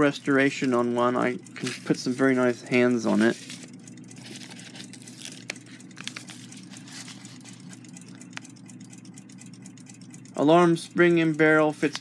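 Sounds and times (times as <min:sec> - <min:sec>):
steady low hum: 0:00.0 - 0:12.0
paper packets rustling: 0:01.5 - 0:07.9.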